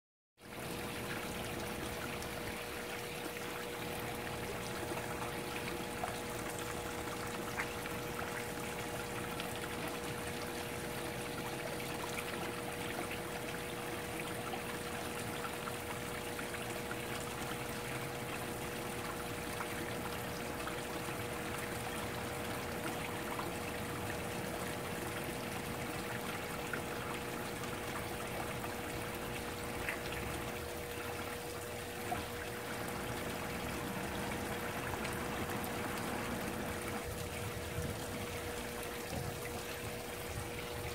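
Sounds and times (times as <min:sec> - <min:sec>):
faint steady hum: 0:00.4 - 0:40.9
pond water trickling: 0:00.4 - 0:40.9.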